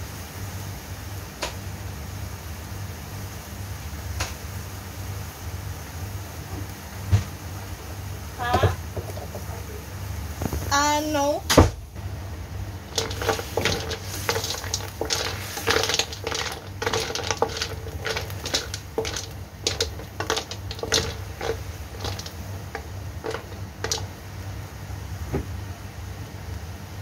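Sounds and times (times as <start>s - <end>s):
snail shells clacking in a wok: 12.8s - 24.2s.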